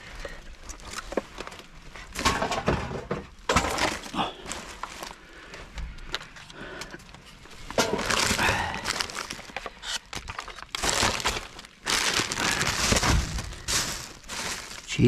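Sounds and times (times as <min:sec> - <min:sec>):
bags and packaging crinkling: 0:00.0 - 0:15.0
items knocking and clattering: 0:00.8 - 0:05.1, 0:07.7 - 0:14.9.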